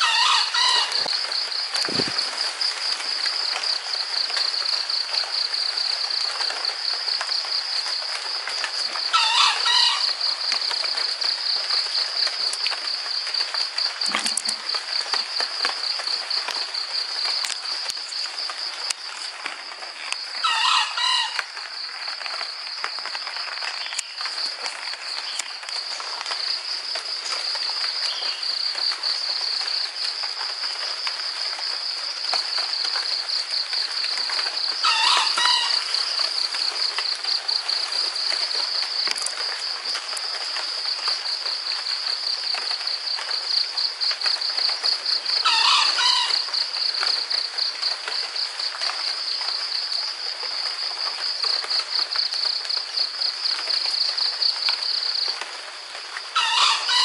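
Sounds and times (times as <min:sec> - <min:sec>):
rooster crowing: 0:00.0 - 0:01.1, 0:09.1 - 0:10.2, 0:20.4 - 0:21.4, 0:34.8 - 0:35.9, 0:45.4 - 0:46.4, 0:56.4 - 0:57.0
insects chorus pulsing: 0:00.0 - 0:57.0.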